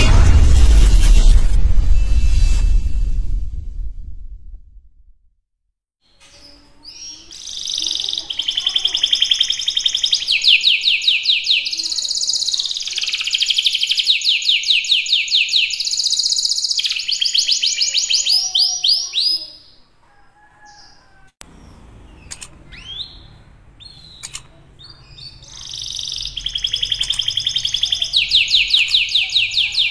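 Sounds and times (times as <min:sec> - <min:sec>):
canary singing trills: 0:06.1 - 0:19.8, 0:20.6 - 0:29.9.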